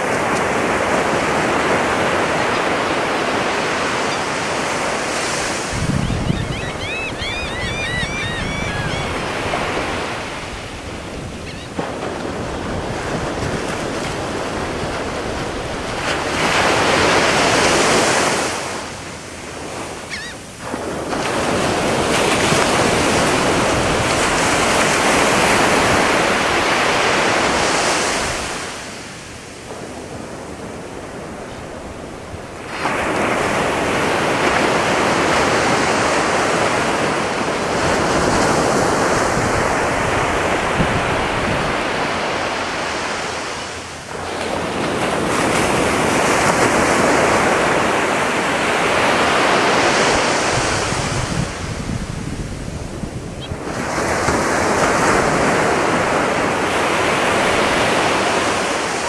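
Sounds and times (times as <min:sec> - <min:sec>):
waves crashing on a beach: 0:00.0 - 0:59.0.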